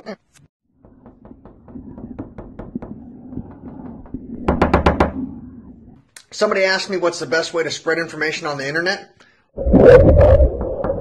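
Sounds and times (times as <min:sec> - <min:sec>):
knocks: 0:00.7 - 0:05.4
heavy rumble: 0:00.8 - 0:06.1.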